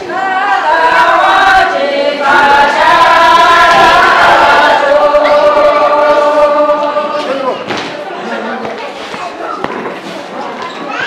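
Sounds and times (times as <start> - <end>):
group of voices singing: 0.0 - 8.3.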